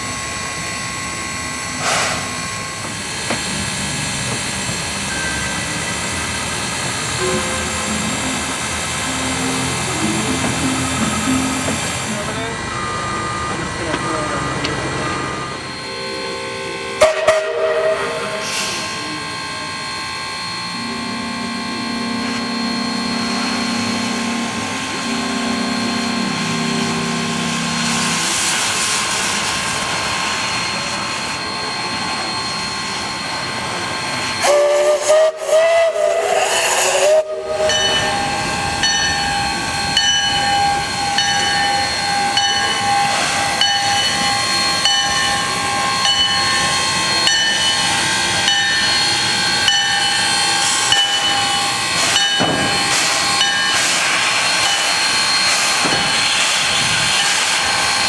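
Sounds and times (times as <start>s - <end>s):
steam locomotive hissing steam: 0.0s - 58.0s
steady tone: 3.5s - 17.3s, 18.0s - 34.4s
steam whistle: 7.1s - 12.3s, 15.4s - 29.8s, 31.4s - 58.0s.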